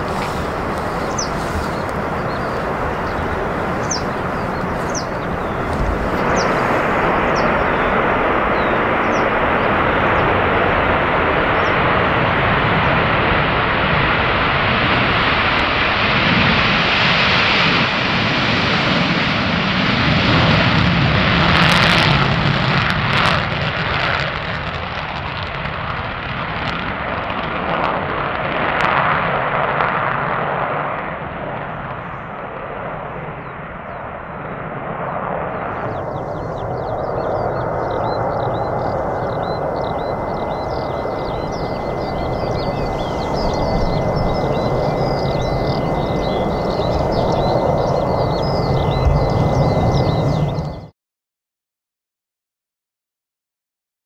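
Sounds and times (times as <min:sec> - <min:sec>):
sharp crackles: 0:00.0 - 0:10.6
jet engines at full afterburner: 0:00.0 - 0:50.9.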